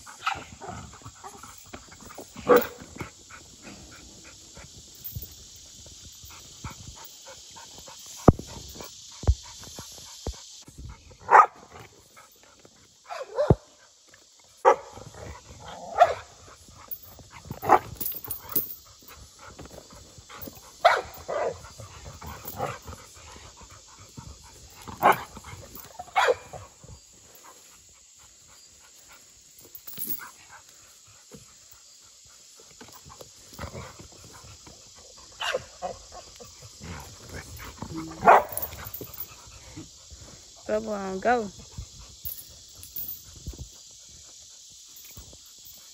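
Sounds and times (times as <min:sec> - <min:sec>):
dog barking: 0:11.3 - 0:11.6, 0:13.1 - 0:13.7, 0:26.2 - 0:26.5, 0:38.2 - 0:38.7.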